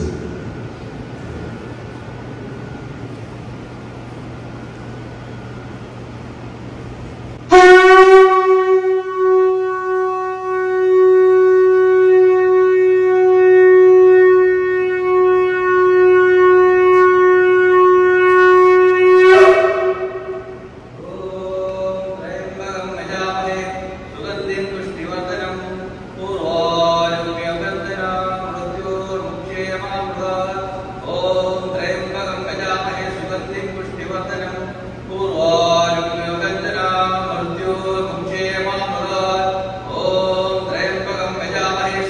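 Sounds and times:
conch shell blown: 7.5s - 21.0s.

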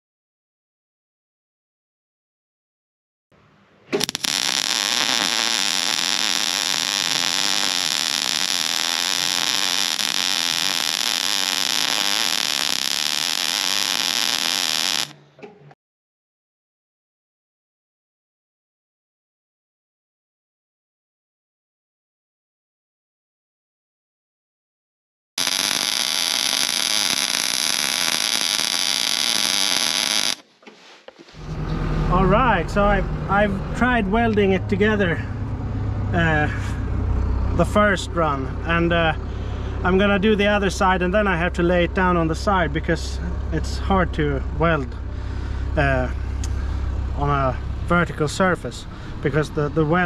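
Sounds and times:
arc welding crackling hiss: 4.0s - 15.1s, 25.4s - 30.4s.

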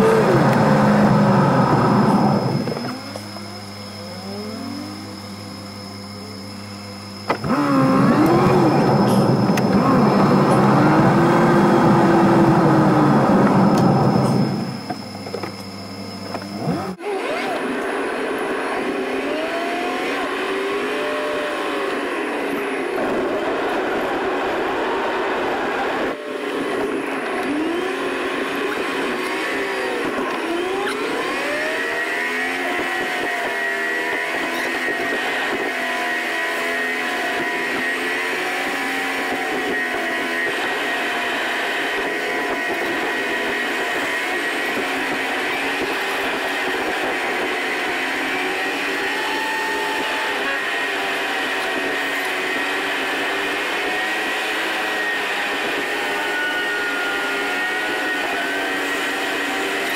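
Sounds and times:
road noise: 0.0s - 5.6s, 7.2s - 48.9s
car engine accelerating: 0.0s - 49.2s.

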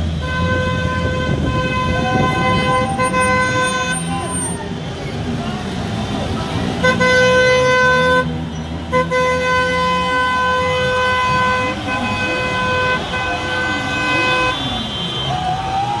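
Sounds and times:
car horn long blasts: 0.1s - 4.4s, 6.8s - 8.3s, 8.9s - 15.5s
high wavering car horn: 0.1s - 4.6s, 6.8s - 15.6s.

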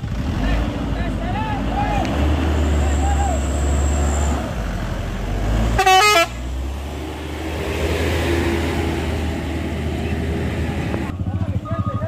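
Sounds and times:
truck diesel engine rumble: 0.0s - 12.0s
vehicle horn blast: 5.8s - 6.4s.

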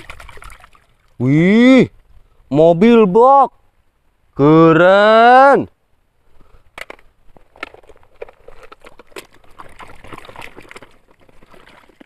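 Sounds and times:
water splashing and sloshing: 0.0s - 1.2s, 7.4s - 12.0s.

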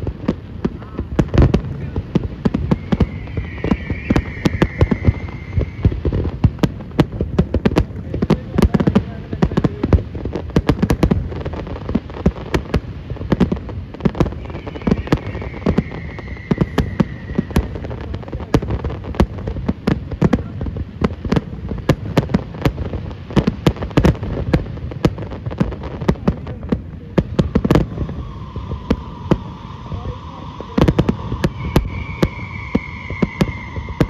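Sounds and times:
fireworks bangs and cracks: 0.0s - 34.0s.

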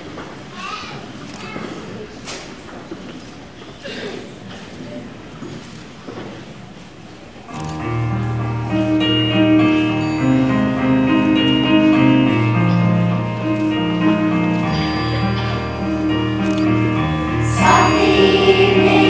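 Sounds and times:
electric keyboard chords: 7.5s - 19.0s.

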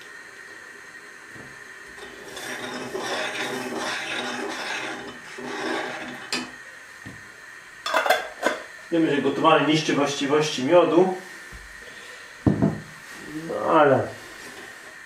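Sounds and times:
spoon scraping in saucepan: 2.0s - 6.6s.

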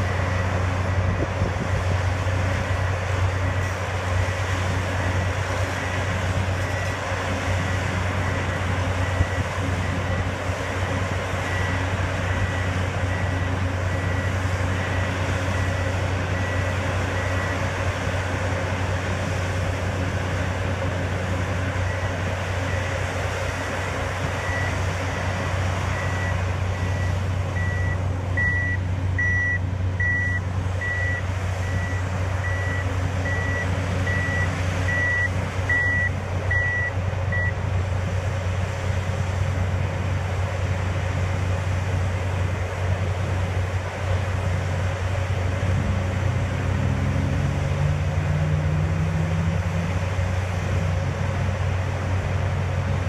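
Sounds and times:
heavy machinery engine drone: 0.0s - 53.0s
backup alarm beeping: 25.9s - 37.6s.

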